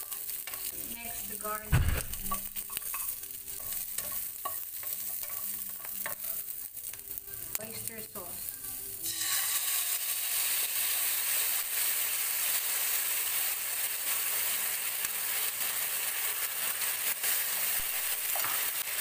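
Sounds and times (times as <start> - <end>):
sauce sizzling in hot oil: 0.0 - 19.0
spatula scraping and stirring: 2.2 - 6.6.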